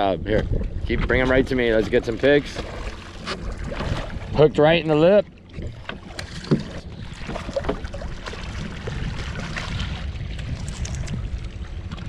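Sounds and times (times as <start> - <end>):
wind rumble on microphone: 0.0 - 12.0
fish thrashing and splashing: 1.8 - 4.4, 5.3 - 12.0.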